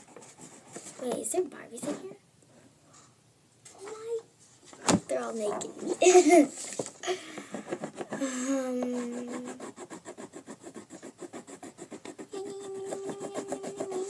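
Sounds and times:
crayon scribbling on paper: 7.6s - 14.0s
child humming: 8.1s - 9.8s, 12.2s - 14.0s.

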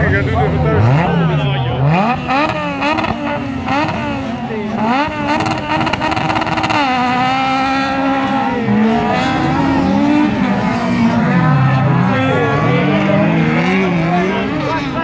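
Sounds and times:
race car engines revving: 0.0s - 15.0s.

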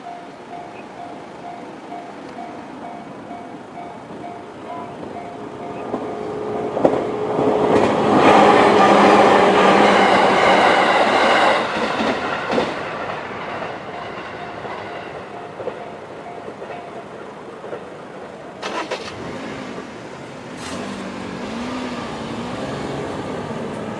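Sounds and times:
train wheels clattering on rails: 0.0s - 18.6s
car engine starting: 18.6s - 23.9s.

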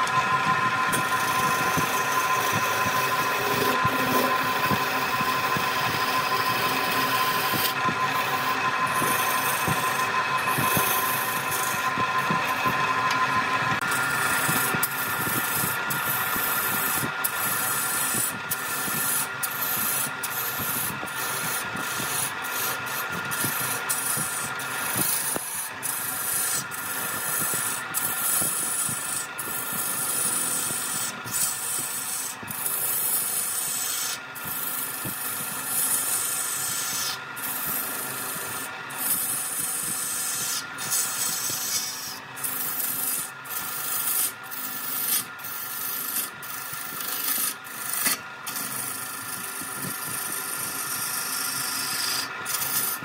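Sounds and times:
wood lathe rasping hiss: 0.0s - 53.0s.

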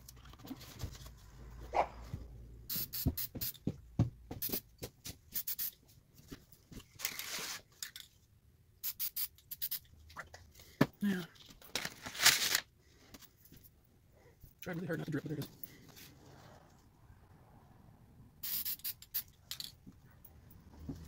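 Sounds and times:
aerosol spray can hissing: 2.7s - 3.6s, 5.4s - 5.7s, 8.8s - 9.8s, 18.4s - 19.3s.

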